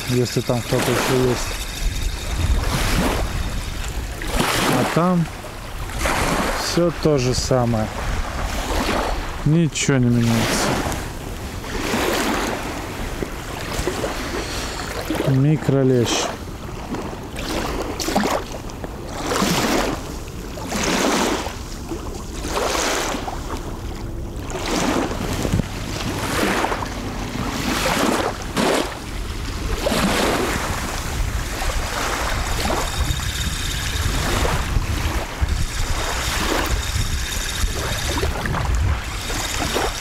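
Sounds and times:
wind buffeting microphone: 0:00.0 - 0:09.5, 0:21.4 - 0:40.0.

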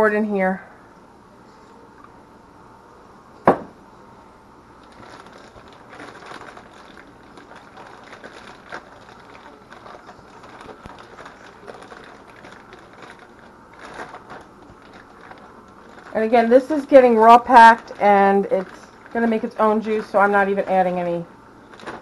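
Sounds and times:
plastic bag crinkling: 0:04.8 - 0:22.0.

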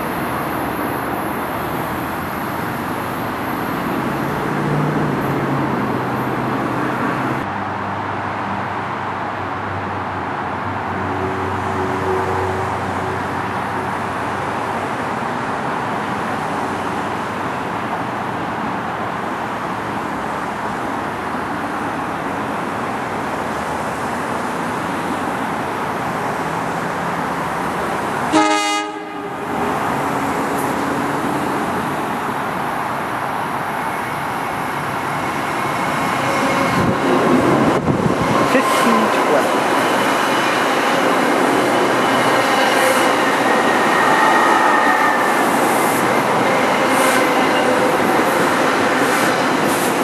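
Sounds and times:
train rumbling: 0:00.0 - 0:07.5, 0:09.9 - 0:50.0.

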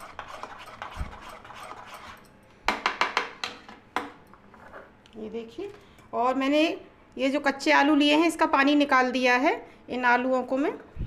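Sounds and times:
spoon stirring thick batter: 0:00.0 - 0:02.3.

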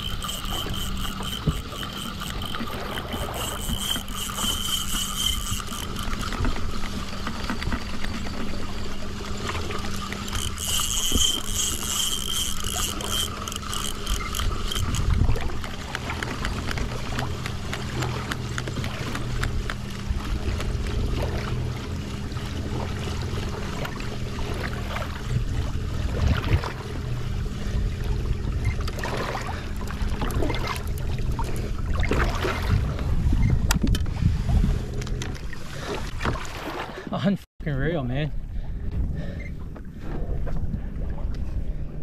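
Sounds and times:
steady low hum: 0:00.0 - 0:36.2
water splashing against kayak hull: 0:00.0 - 0:37.1
wind buffeting microphone: 0:10.4 - 0:17.4, 0:31.8 - 0:35.5.

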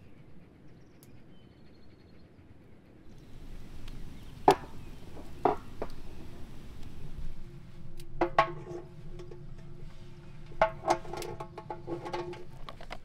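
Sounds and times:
campfire crackling: 0:03.1 - 0:11.8.

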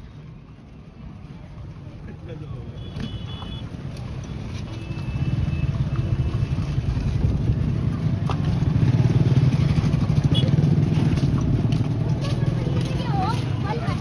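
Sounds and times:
vehicle engine rumbling: 0:00.0 - 0:14.0.

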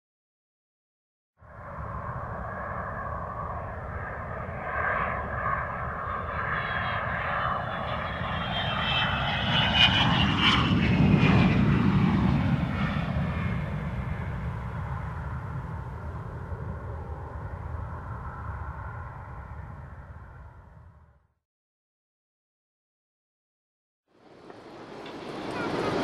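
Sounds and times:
airplane engine passing overhead: 0:01.4 - 0:21.4, 0:24.1 - 0:26.0
falling engine whine: 0:24.1 - 0:26.0.

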